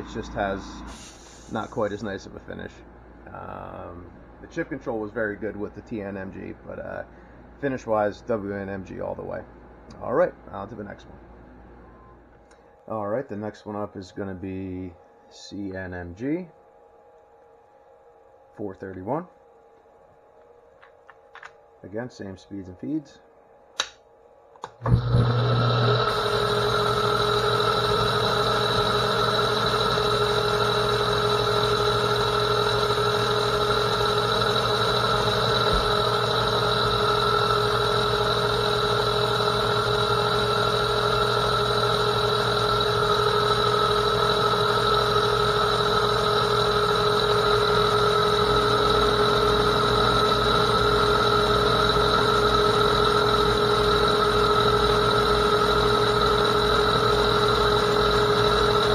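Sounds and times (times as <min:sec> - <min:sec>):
metal lathe whining: 0:00.0 - 0:02.0, 0:24.8 - 0:58.9.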